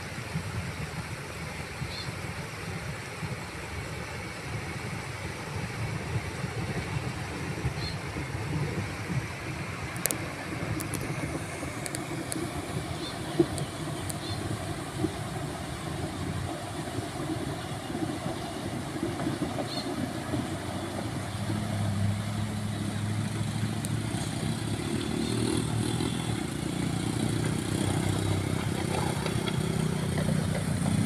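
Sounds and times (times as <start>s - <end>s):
motorcycle engine running: 21.1s - 31.0s.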